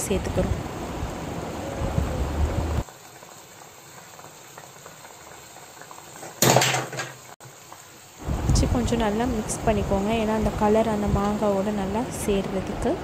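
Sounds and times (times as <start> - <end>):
syrup bubbling in a pan: 2.8 - 10.0.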